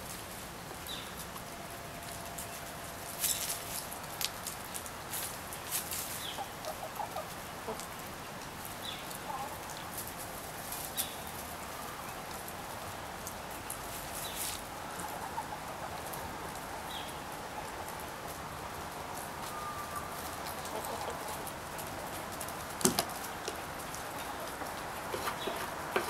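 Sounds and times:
hens clucking: 5.8s - 8.1s, 8.9s - 10.1s, 14.1s - 16.6s, 19.4s - 26.0s.

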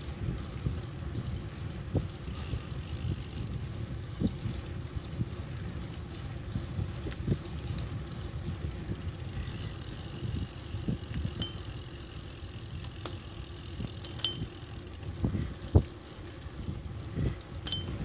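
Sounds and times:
bicycle tyres rolling over asphalt: 0.0s - 18.0s
wind on microphone: 0.0s - 18.0s
small clicks and rattles: 4.4s - 18.0s.

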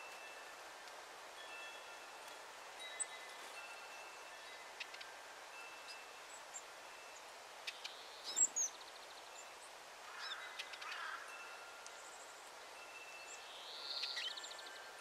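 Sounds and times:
small songbirds chirping: 1.4s - 15.0s.

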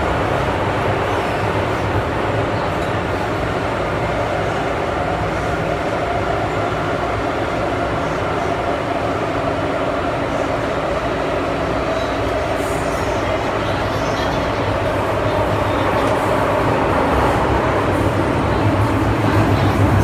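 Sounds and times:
train running noise: 0.0s - 20.0s.

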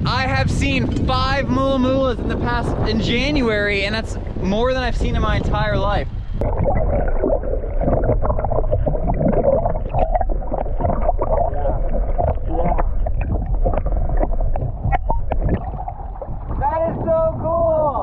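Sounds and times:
underwater rumble of moving water: 0.0s - 18.0s.

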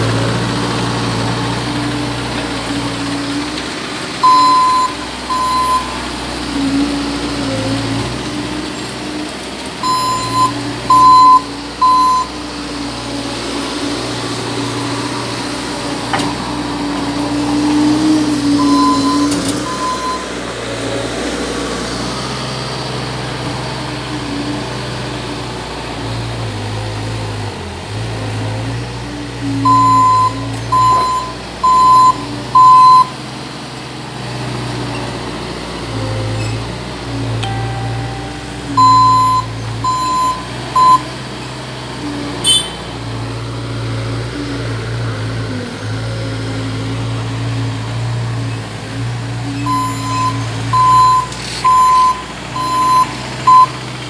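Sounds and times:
diesel engine running: 0.0s - 54.0s
reversing alarm beeps: 4.2s - 6.0s, 9.8s - 12.4s, 18.6s - 20.3s, 29.6s - 33.2s, 37.4s - 41.1s, 49.6s - 53.8s.

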